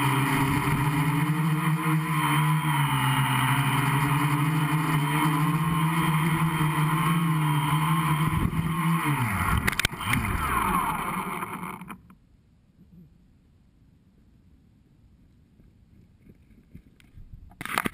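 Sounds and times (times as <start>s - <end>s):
drone motors and propellers humming: 0.0s - 12.2s.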